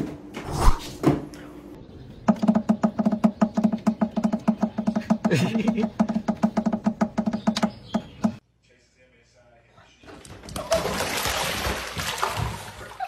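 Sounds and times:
rapid knocking on wooden nest box: 2.3 - 8.4.

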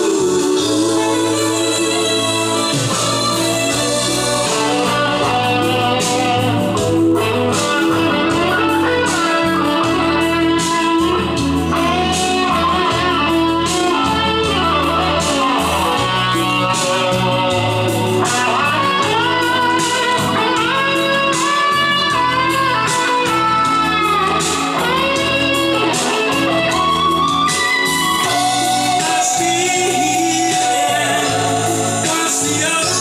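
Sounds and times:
guitar music from loudspeakers: 0.0 - 33.0.

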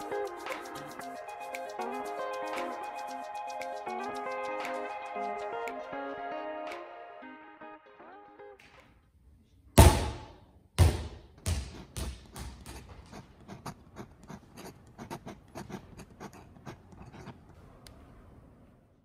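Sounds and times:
basketball bouncing on hall floor: 9.8 - 13.1.

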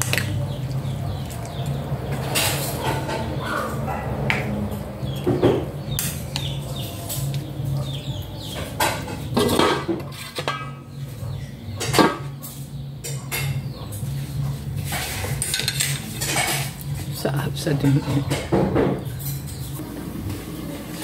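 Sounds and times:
wooden spatula scraping frying pan: 9.3 - 10.6.

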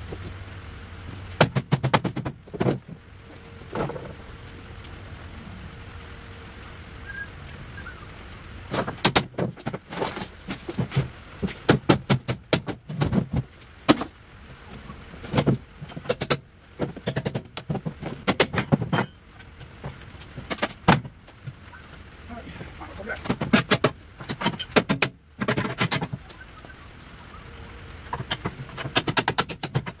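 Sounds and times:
knocks and clanks of wood and metal: 1.4 - 4.3, 8.7 - 21.8, 22.7 - 26.7, 28.0 - 30.0.

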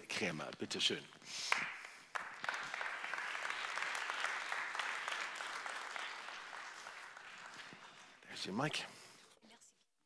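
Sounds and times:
audience applauding: 1.5 - 8.8.

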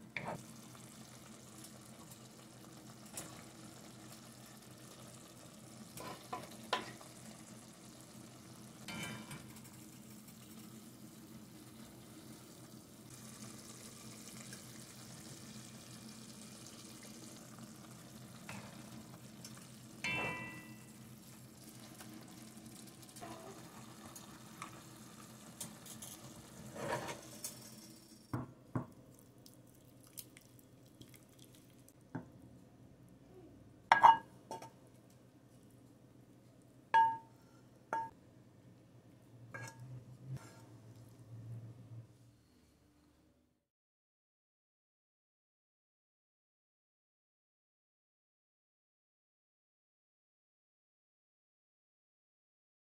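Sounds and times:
greens simmering with faint hiss: 0.0 - 41.7
clinks against ceramic bowl: 20.1 - 20.9, 33.9 - 34.7, 37.0 - 37.3.

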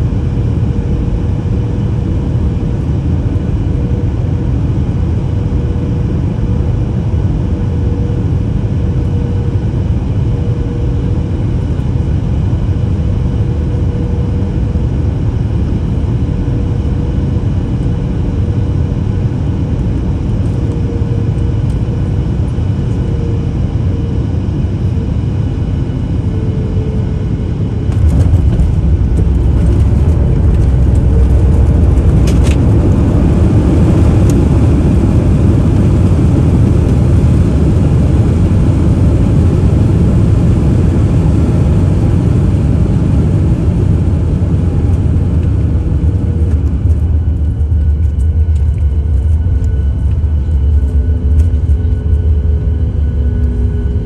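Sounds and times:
airplane cabin air rush and engine hum: 0.0 - 54.0
wheels rumbling on runway: 0.0 - 54.0.

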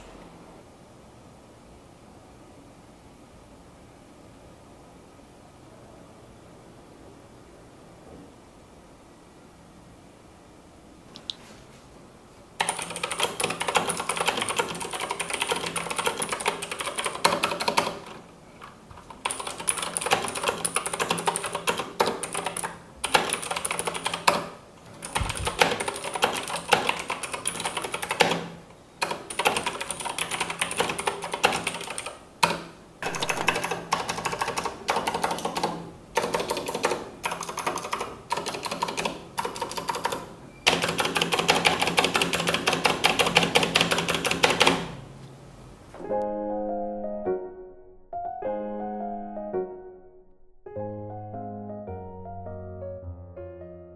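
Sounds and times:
clicky mechanical keyboard typing: 12.6 - 18.2, 19.0 - 45.0.

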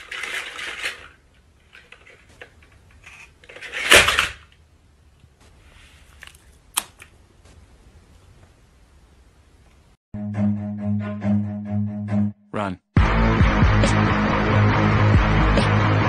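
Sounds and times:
toy toppling over clatter: 0.0 - 4.6.

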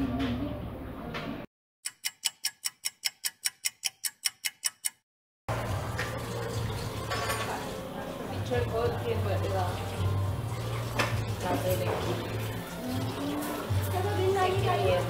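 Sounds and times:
clock ticking: 1.8 - 5.0.

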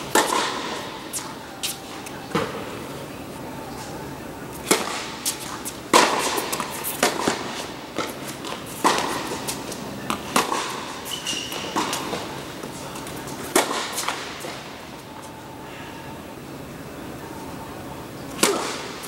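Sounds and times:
racket hitting tennis ball: 0.0 - 2.7, 4.5 - 14.7, 18.2 - 19.0
tennis ball bouncing: 0.0 - 2.7, 4.5 - 14.6, 18.2 - 19.0.

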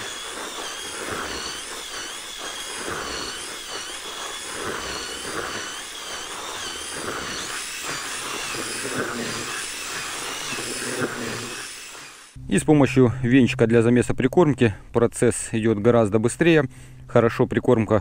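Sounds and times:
power drill whining: 0.0 - 12.4
rustling churn of mix: 0.0 - 12.4.

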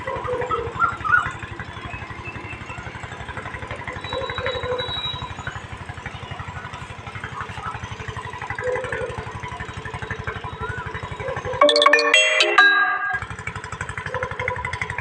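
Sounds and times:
engine idling: 0.0 - 11.6.

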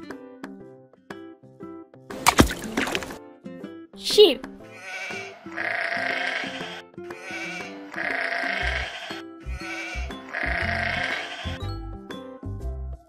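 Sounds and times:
background music: 0.0 - 13.0
sheep bleating: 4.6 - 11.6.

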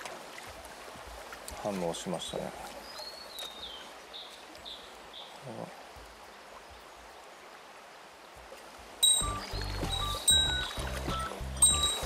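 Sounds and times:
river rushing: 0.0 - 12.0
bird high falling notes: 9.0 - 12.0.

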